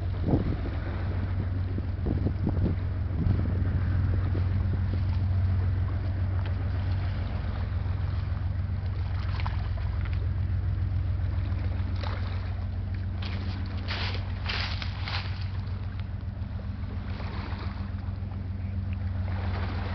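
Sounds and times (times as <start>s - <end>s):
boat engine drone: 0.0s - 19.9s
wind and water hiss: 0.0s - 19.9s.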